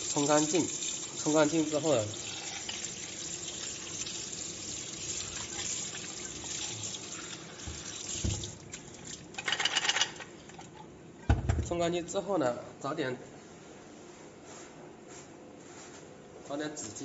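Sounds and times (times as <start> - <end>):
tap water splashing in sink: 5.0 - 9.3
dull knocks: 7.7 - 8.6, 11.3 - 11.8.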